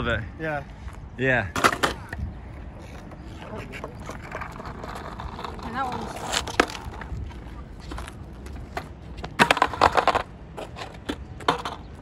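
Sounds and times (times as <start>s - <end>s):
skateboard rolling on asphalt: 1.6s - 12.0s
skateboard tail clacks: 3.1s - 12.0s.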